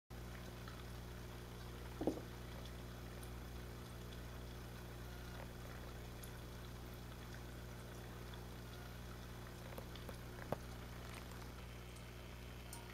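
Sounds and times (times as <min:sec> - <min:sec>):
low hum of tank equipment: 0:00.1 - 0:12.9
water bubbling and trickling: 0:00.1 - 0:12.9
short knock: 0:02.0 - 0:02.3.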